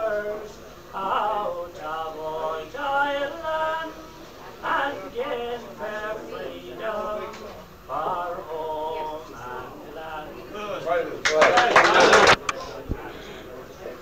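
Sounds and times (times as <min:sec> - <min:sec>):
man singing unaccompanied ballad: 0:00.0 - 0:10.5.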